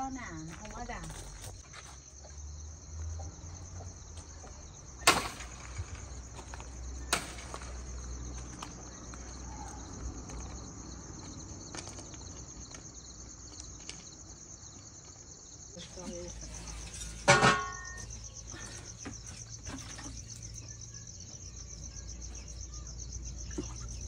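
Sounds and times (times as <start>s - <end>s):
crickets chirping: 0.0s - 24.0s.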